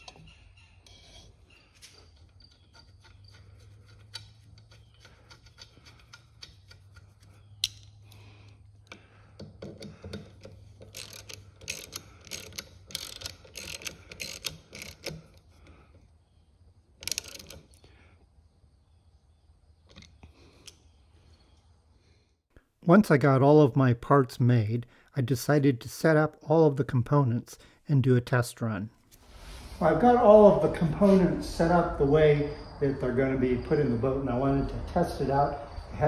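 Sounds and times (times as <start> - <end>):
ratchet wrench clicking: 9.8 - 15.4, 17.0 - 17.6.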